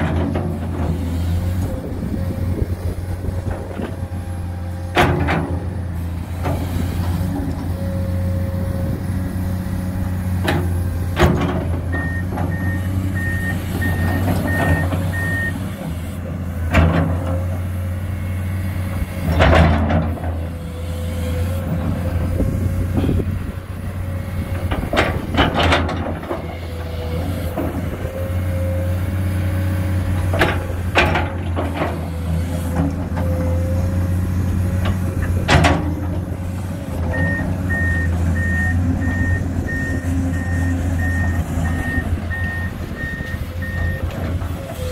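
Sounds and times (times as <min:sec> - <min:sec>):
excavator diesel engine running: 0:00.0 - 0:44.9
reversing alarm beeps: 0:11.9 - 0:15.6, 0:37.1 - 0:44.1.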